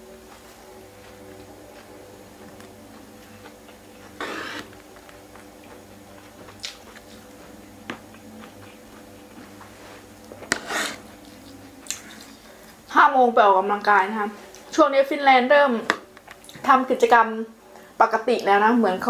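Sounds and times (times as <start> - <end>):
faint steady hum: 0.0 - 19.0
person chewing: 2.9 - 9.6, 11.2 - 12.8.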